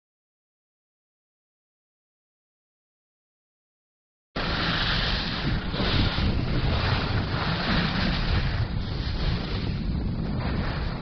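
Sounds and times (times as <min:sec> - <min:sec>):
wind buffeting microphone: 0:04.4 - 0:11.0.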